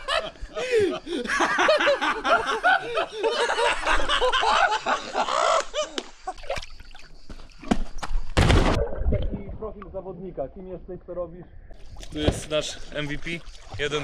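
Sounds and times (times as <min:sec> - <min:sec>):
men laughing: 0:00.0 - 0:06.4.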